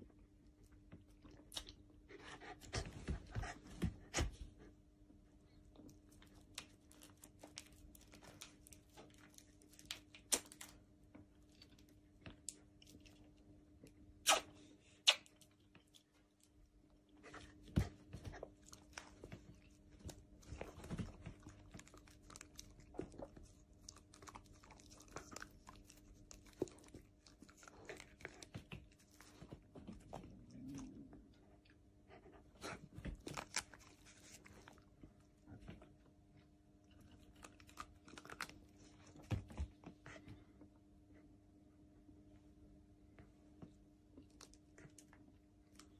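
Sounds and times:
faint steady hum: 0.0 - 45.9
dog licking and chewing: 18.3 - 30.9.

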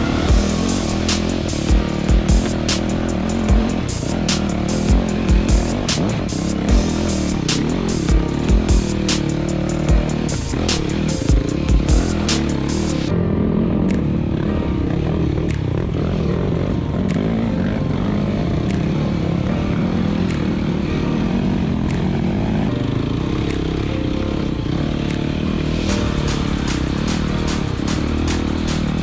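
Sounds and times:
dirt bike engines running: 0.0 - 29.0.

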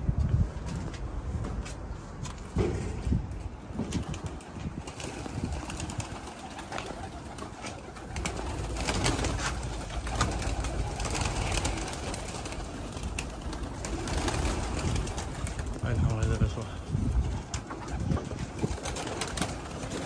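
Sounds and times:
pigeons cooing: 5.0 - 15.7.

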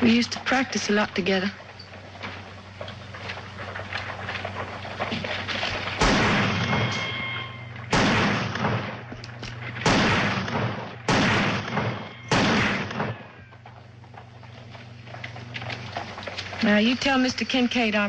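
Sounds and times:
pistol shots echoing: 5.8 - 13.5.

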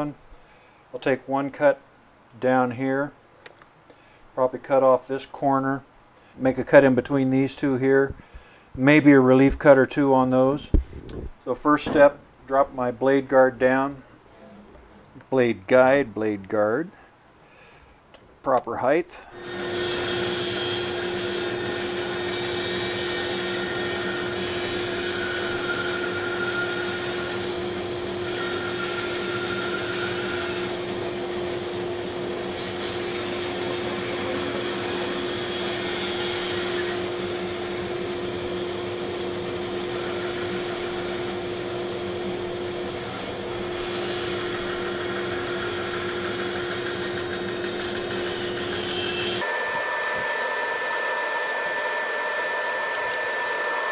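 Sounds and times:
bandsaw cutting wood: 19.3 - 53.9.

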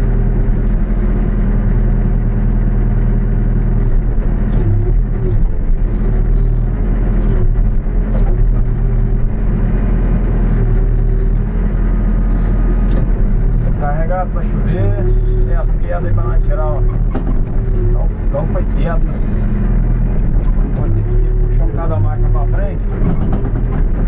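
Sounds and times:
diesel engine running: 0.0 - 24.0
faint knocks and clanks: 16.8 - 17.9, 22.8 - 24.0.

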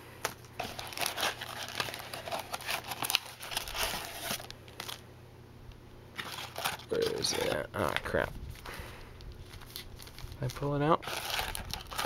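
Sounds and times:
foil packs crinkling: 0.2 - 5.0, 6.2 - 12.0
cardboard box rustling: 0.6 - 5.0, 11.0 - 12.0.

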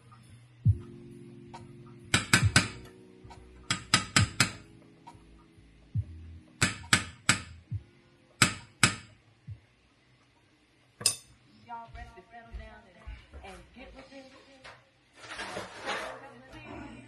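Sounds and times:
metal spoon tapping saucepan: 3.7 - 4.6, 11.0 - 11.4.

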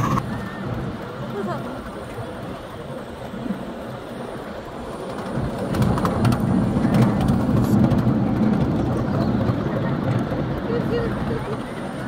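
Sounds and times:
miniature train rumbling on track: 0.0 - 12.0.

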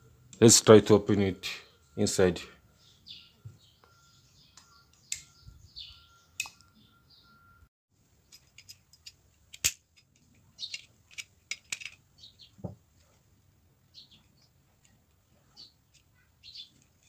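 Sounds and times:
small birds chirping: 1.2 - 7.6, 10.3 - 11.2, 11.8 - 17.0
sharp plastic snap: 9.6 - 9.8.

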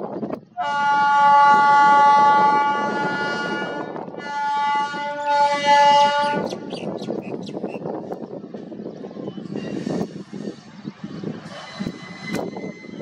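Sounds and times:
train running noise: 0.0 - 13.0
train horn blasts: 0.6 - 6.7.

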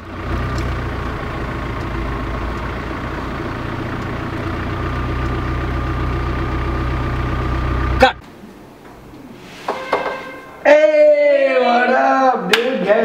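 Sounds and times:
vehicle engine drone: 0.0 - 8.2.

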